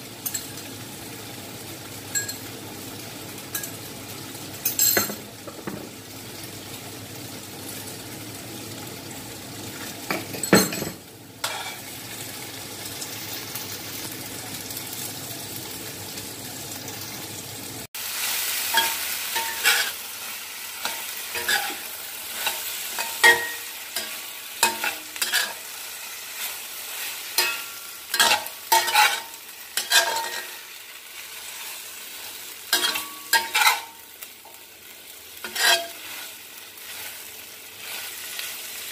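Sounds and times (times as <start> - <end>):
food sizzling in a wok: 0.0 - 38.9
spatula scraping a wok: 11.4 - 12.0, 18.6 - 34.0, 35.4 - 38.9.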